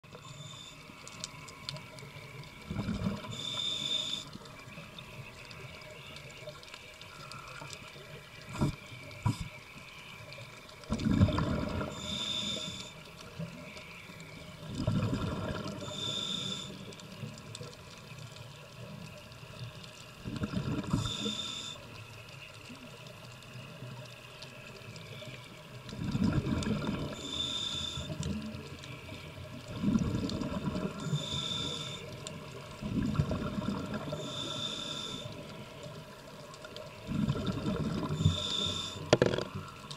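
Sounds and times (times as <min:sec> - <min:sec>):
regulator breathing underwater: 0:03.0 - 0:04.4, 0:11.5 - 0:13.1, 0:15.5 - 0:16.9, 0:20.7 - 0:21.9, 0:26.8 - 0:28.4, 0:30.9 - 0:32.3, 0:34.0 - 0:35.5, 0:37.1 - 0:39.4
exhaled bubbles rushing: 0:10.9 - 0:12.0, 0:14.6 - 0:15.9, 0:20.2 - 0:21.1, 0:25.9 - 0:27.2, 0:29.7 - 0:31.1, 0:32.8 - 0:34.2, 0:37.0 - 0:38.3.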